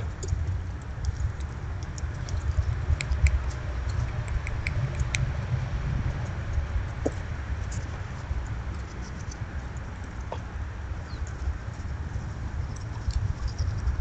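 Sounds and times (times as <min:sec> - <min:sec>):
squirrels foraging in seed: 0:00.0 - 0:14.0
steady low rumble: 0:00.0 - 0:14.0.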